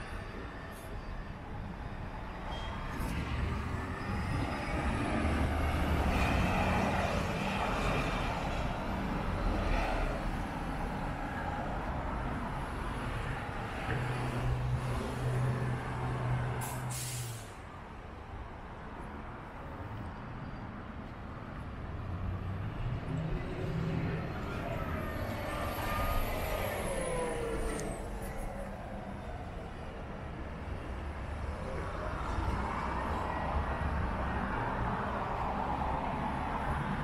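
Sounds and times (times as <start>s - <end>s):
traffic driving past: 1.6s - 17.9s, 19.2s - 37.0s
short hiss: 16.6s - 17.5s.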